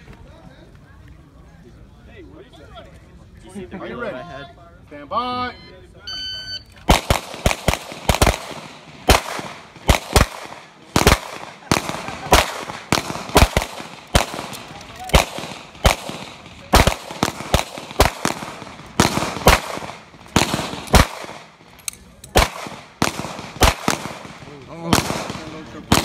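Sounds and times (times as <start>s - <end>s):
pistol shots: 6.8s - 26.0s.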